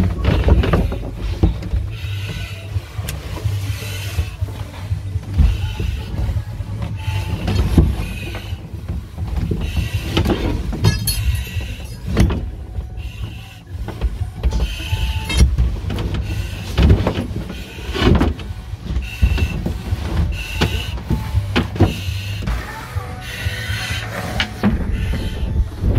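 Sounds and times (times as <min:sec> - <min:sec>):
gear knocking and scraping: 0:00.0 - 0:25.9
steady low hum: 0:00.0 - 0:25.9
breathing apparatus hissing: 0:00.4 - 0:08.8, 0:12.8 - 0:15.4, 0:16.2 - 0:18.1, 0:18.8 - 0:25.7.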